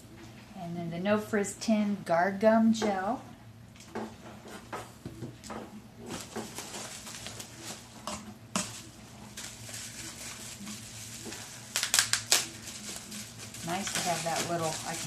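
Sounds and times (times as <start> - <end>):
plastic bags and bubble wrap crinkling: 6.0 - 15.0.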